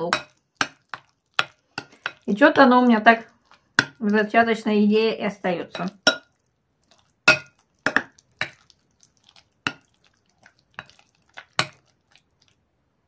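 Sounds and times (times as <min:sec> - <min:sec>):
spoon clinking against glass bowl: 0:05.7 - 0:06.4, 0:07.3 - 0:08.6.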